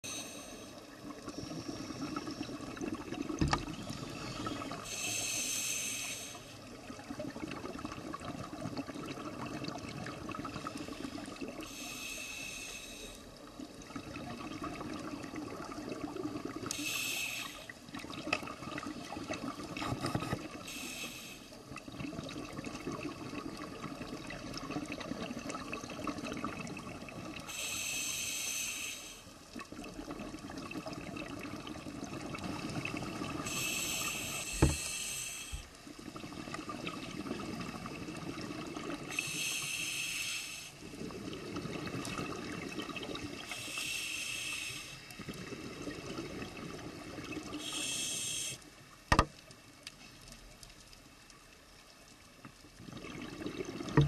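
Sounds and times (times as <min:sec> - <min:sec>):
diver breathing through regulator: 0:00.0 - 0:02.6, 0:03.8 - 0:06.6, 0:10.6 - 0:13.3, 0:16.7 - 0:17.7, 0:19.8 - 0:21.5, 0:27.5 - 0:29.3, 0:33.4 - 0:35.7, 0:39.1 - 0:40.8, 0:43.5 - 0:45.1, 0:47.6 - 0:48.6
exhaled bubbles rushing: 0:40.9 - 0:43.5, 0:52.8 - 0:54.0.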